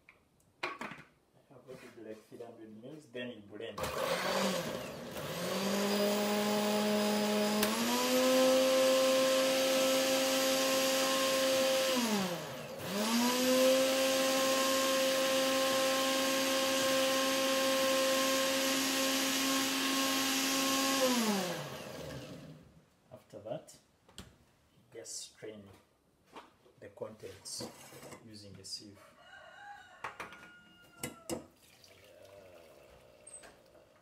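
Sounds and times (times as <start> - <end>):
electric blender running: 3.8 - 22.6.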